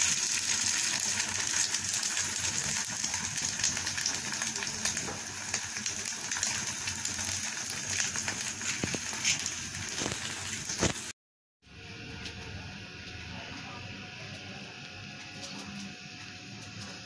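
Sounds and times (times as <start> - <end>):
egg sizzling in hot oil: 0.0 - 11.2
oil popping: 1.0 - 11.1.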